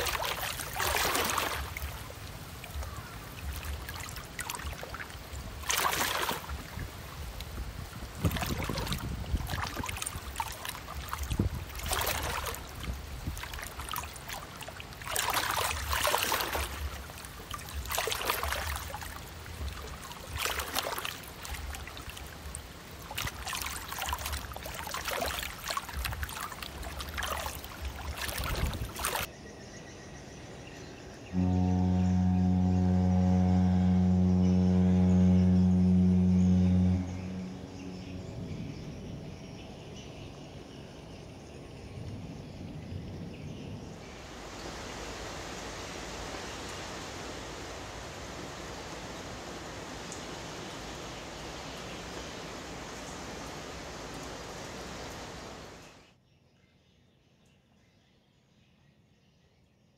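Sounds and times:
water splashing in surges: 0.0 - 29.3, 43.2 - 56.2
low rumble: 31.3 - 40.8.

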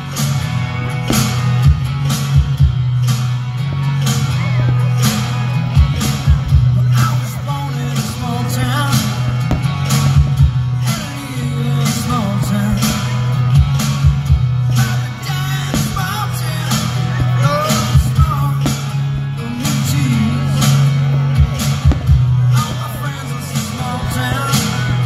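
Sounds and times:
rock music with singer and guitar: 0.0 - 25.0
sharp thumps: 1.0 - 6.8, 8.9 - 14.3.

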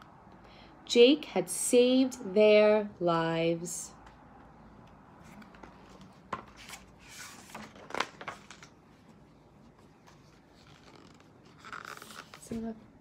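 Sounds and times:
book pages rustling: 5.2 - 12.8.

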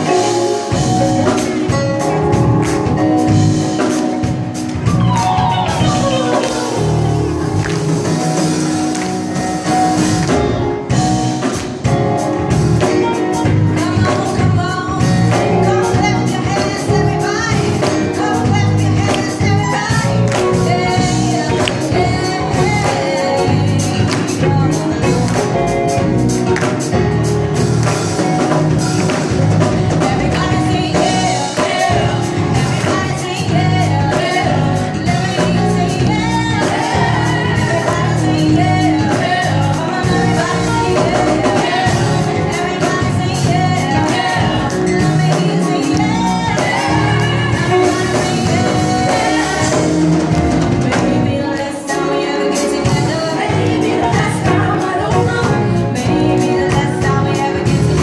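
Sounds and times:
drums: 0.0 - 58.0
electric guitar: 0.0 - 58.0
women singing gospel: 0.0 - 58.0.

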